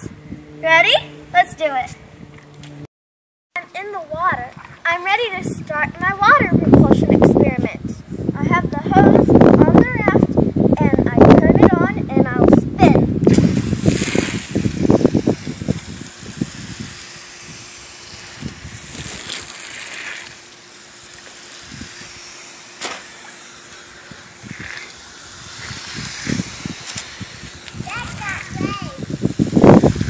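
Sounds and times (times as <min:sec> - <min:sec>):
hose water spraying into pool: 0:13.2 - 0:30.0.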